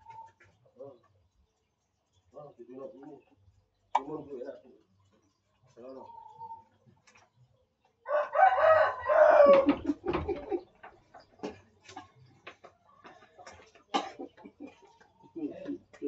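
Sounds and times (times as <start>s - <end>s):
rooster crowing: 8.0s - 9.8s.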